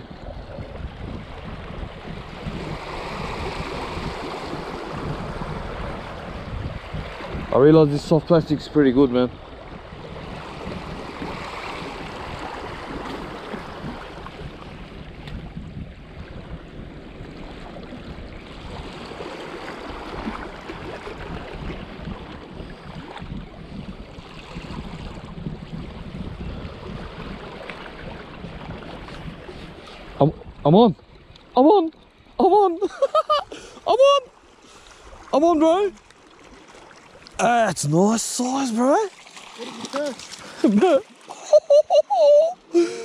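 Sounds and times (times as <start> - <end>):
wind buffeting microphone: 0.0 - 31.6
small waves lapping on rocks: 17.4 - 23.3, 33.5 - 41.5.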